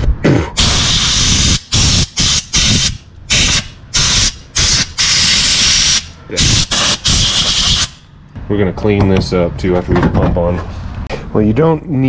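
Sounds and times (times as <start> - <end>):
pressurised spray hissing: 0.6 - 8.0.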